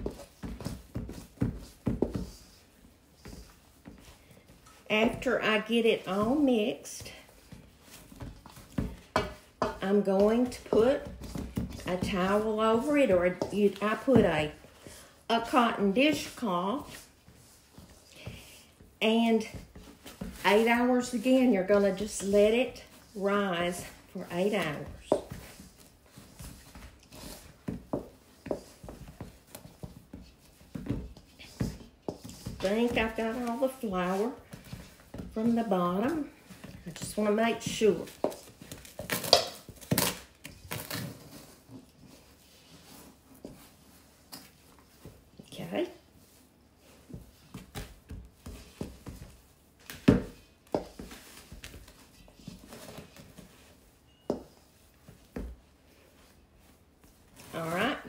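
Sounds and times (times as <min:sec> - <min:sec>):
spoon stirring dough in bowl: 0:00.0 - 0:38.5
wooden spoon scraping metal bowl: 0:09.0 - 0:17.2.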